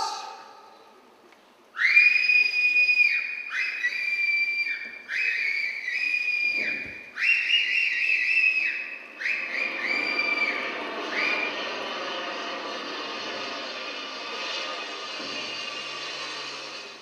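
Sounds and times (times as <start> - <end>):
high sliding whistle tones: 1.8 - 17.0.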